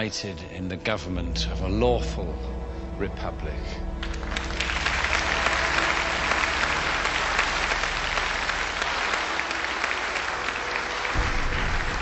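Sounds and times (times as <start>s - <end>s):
crowd applauding: 4.0s - 12.0s.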